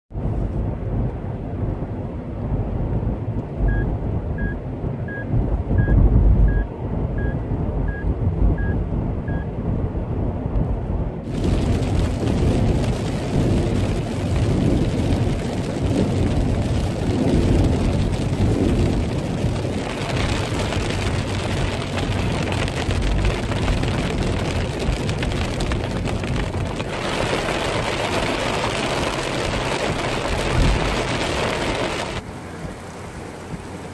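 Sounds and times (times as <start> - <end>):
car cabin road rumble: 0.1 - 33.9
short electronic beeps: 3.7 - 9.5
rain on windshield and roof: 11.2 - 33.9.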